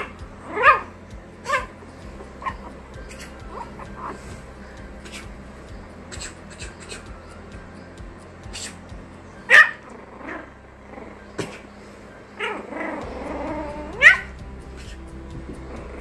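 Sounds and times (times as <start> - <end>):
puppy yipping: 0.0 - 1.8, 2.4 - 4.4, 9.5 - 11.7, 12.3 - 15.0
puppy whining: 0.0 - 7.4, 9.4 - 15.1.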